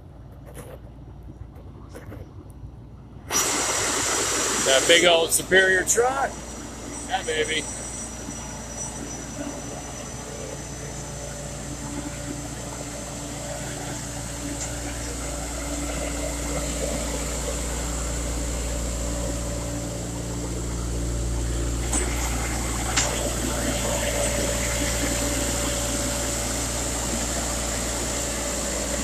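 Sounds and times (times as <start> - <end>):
truck and pump engines droning: 0.0 - 29.0.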